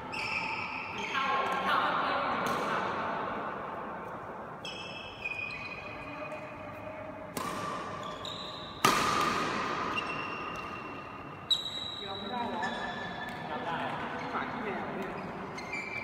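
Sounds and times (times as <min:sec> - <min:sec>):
shoes squeaking on court: 0:00.0 - 0:01.3, 0:04.6 - 0:06.6, 0:07.8 - 0:09.0, 0:09.6 - 0:16.0
badminton racket hitting shuttlecock: 0:07.3 - 0:11.1.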